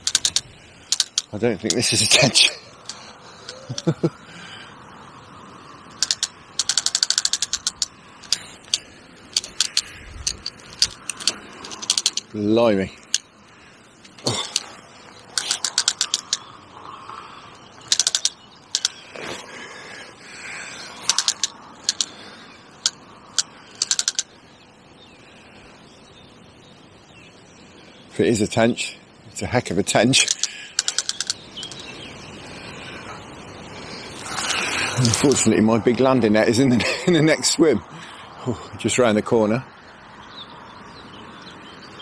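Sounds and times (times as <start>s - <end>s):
fishing reel clutch clicking: 0.0s - 1.3s, 6.0s - 8.8s, 9.4s - 12.3s, 15.3s - 16.4s, 17.8s - 19.0s, 21.0s - 22.1s, 22.8s - 24.3s, 30.3s - 31.8s.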